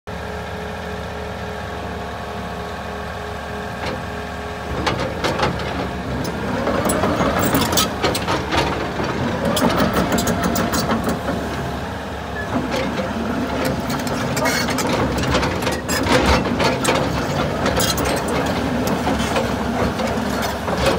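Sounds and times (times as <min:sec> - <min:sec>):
excavator diesel engine: 0:00.1 - 0:20.9
metallic clanks and squeaks: 0:04.7 - 0:11.6, 0:12.4 - 0:20.9.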